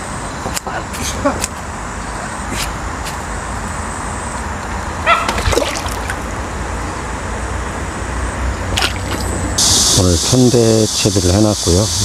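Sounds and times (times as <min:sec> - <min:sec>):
steady background noise: 0:00.0 - 0:12.0
water splashing and trickling: 0:05.2 - 0:06.4, 0:08.7 - 0:09.6.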